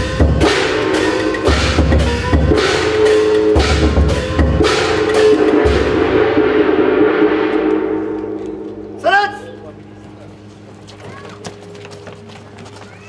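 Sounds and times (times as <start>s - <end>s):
deep drum beating: 0.0s - 9.1s
ringing metal percussion hits: 0.0s - 10.1s.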